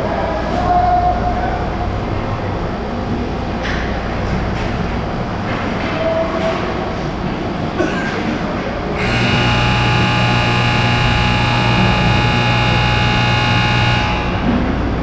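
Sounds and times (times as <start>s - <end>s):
arena hum: 8.9s - 15.0s
ice rink horn blast: 9.0s - 14.6s.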